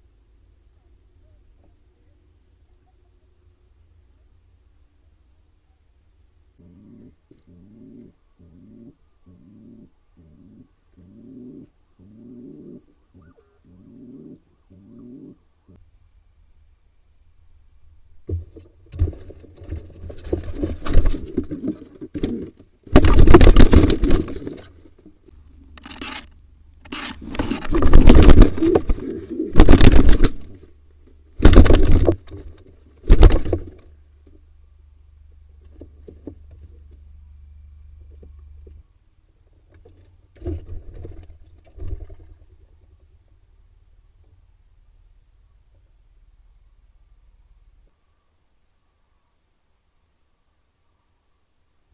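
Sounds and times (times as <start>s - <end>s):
birds scuffling: 18.1s - 43.6s
wings flapping: 18.9s - 25.1s, 26.9s - 30.7s, 31.3s - 33.9s
nest litter rustling: 26.9s - 33.8s.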